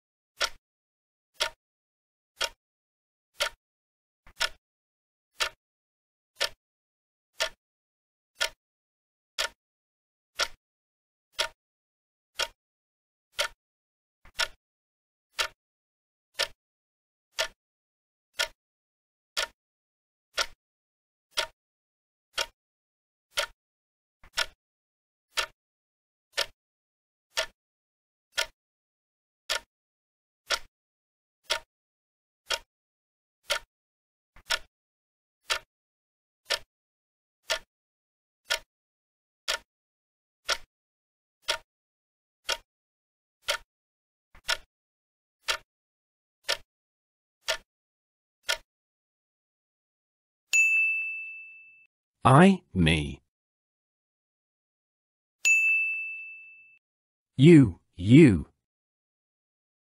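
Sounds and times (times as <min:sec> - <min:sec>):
clock ticking: 0:00.4 - 0:00.6, 0:03.4 - 0:03.6, 0:04.3 - 0:04.6, 0:06.4 - 0:06.6, 0:08.4 - 0:08.6, 0:10.4 - 0:10.6, 0:11.4 - 0:11.6, 0:12.4 - 0:12.6, 0:13.4 - 0:13.6, 0:14.4 - 0:14.6, 0:15.4 - 0:15.6, 0:16.4 - 0:16.6, 0:17.4 - 0:17.6, 0:18.4 - 0:18.6, 0:19.4 - 0:19.6, 0:20.4 - 0:20.6, 0:24.4 - 0:24.6, 0:28.4 - 0:28.6.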